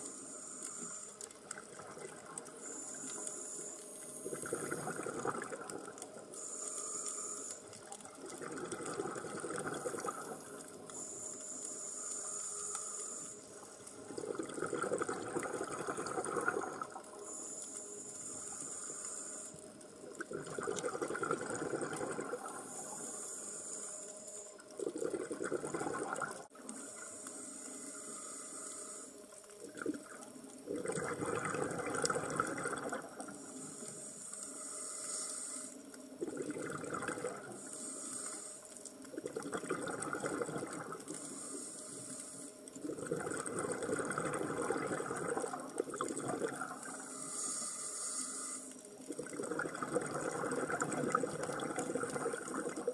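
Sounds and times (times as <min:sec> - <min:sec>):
regulator inhale hiss: 0:00.0 - 0:01.3, 0:02.4 - 0:05.0, 0:06.2 - 0:08.0, 0:09.6 - 0:14.1, 0:17.1 - 0:20.1, 0:22.5 - 0:24.6, 0:26.6 - 0:29.4, 0:33.3 - 0:36.1, 0:37.4 - 0:39.0, 0:41.0 - 0:42.8, 0:46.8 - 0:49.0
exhaled bubbles rushing: 0:04.3 - 0:06.0, 0:08.0 - 0:10.4, 0:14.0 - 0:17.1, 0:20.2 - 0:22.6, 0:24.8 - 0:26.5, 0:29.6 - 0:33.4, 0:36.2 - 0:37.6, 0:39.1 - 0:41.2, 0:42.8 - 0:47.0, 0:49.1 - 0:52.9.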